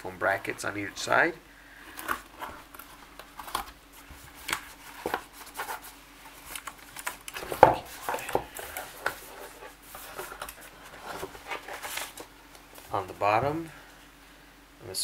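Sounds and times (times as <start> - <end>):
packing material rustling: 1.8 - 12.9.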